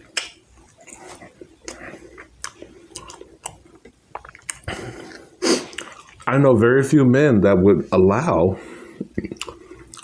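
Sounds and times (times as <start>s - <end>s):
person chewing food: 0.0s - 6.3s, 8.9s - 10.0s.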